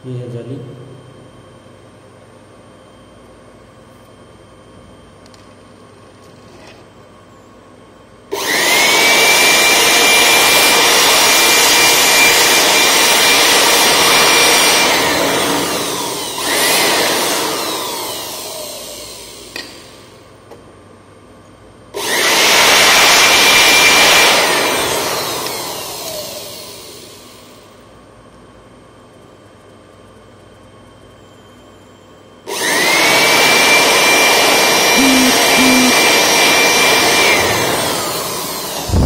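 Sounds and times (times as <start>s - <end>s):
electric air blower motor whine: 8.3s - 20.3s, 21.9s - 27.8s, 32.4s - 39.0s.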